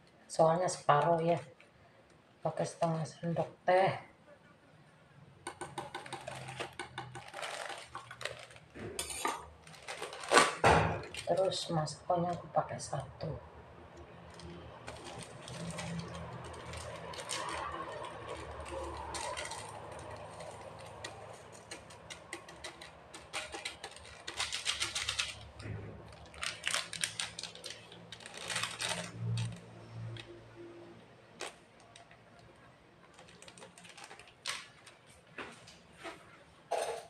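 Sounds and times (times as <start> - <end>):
plastic sachets crinkling and tearing: 5.5 - 11.7, 14.2 - 30.4, 31.2 - 35.2.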